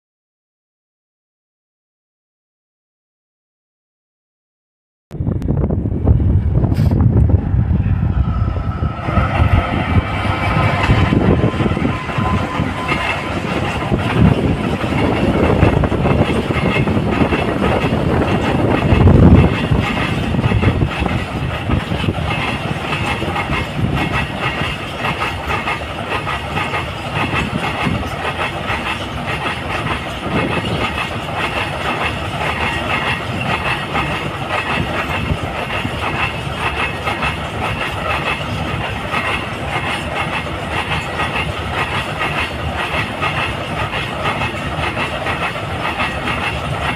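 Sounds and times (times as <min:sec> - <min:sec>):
train wheels clacking on rails: 0:06.6 - 0:46.9.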